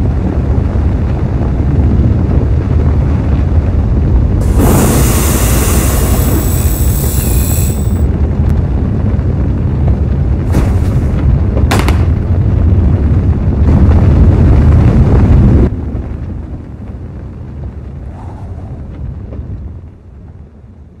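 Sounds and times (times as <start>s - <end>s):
rocket thruster rumble: 0.0s - 21.0s
short hissing blasts: 4.4s - 8.1s.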